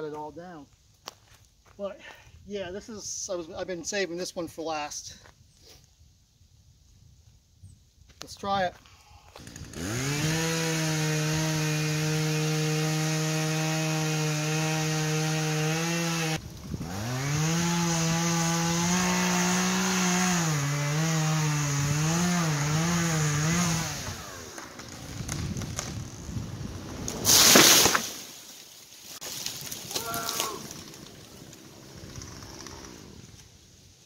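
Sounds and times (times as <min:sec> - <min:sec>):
chainsaw cutting into tree: 0:09.3 - 0:28.4, 0:29.3 - 0:33.5.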